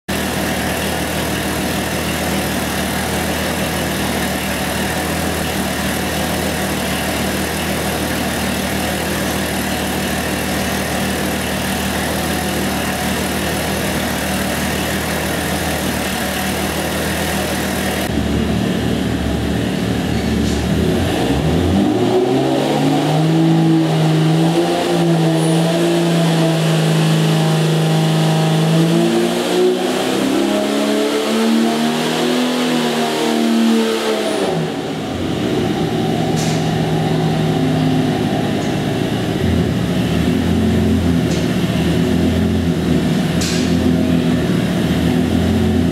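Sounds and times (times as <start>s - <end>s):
engine revving on dynamometer: 20.5s - 45.9s.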